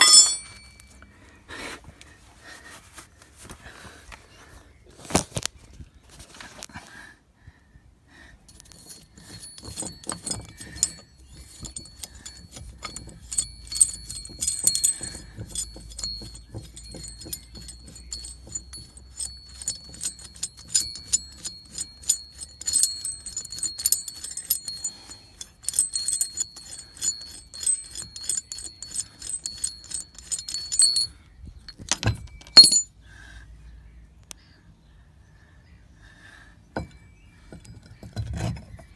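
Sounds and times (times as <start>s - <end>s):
metal nut clicking on stud: 8.5s - 31.1s.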